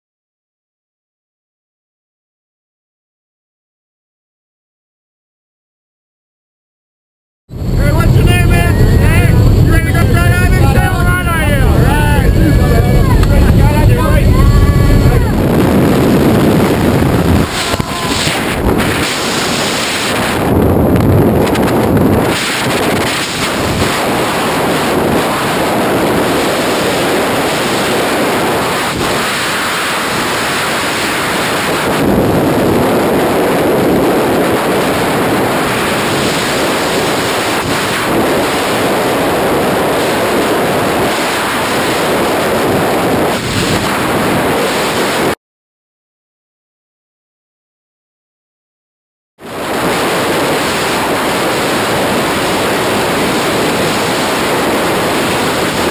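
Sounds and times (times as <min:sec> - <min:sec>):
wind buffeting microphone: 0:07.5 - 0:45.4, 0:49.4 - 0:55.9.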